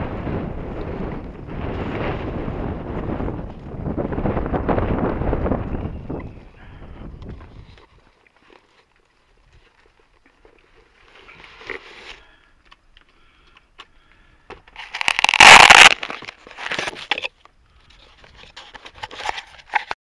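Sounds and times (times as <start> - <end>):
model plane rustling and scraping: 14.7 - 20.0.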